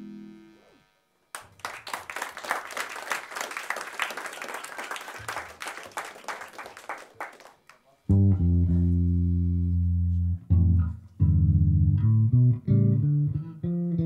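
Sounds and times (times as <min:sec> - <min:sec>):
audience applauding: 0:01.3 - 0:07.9
electric bass guitar note: 0:08.1 - 0:14.0.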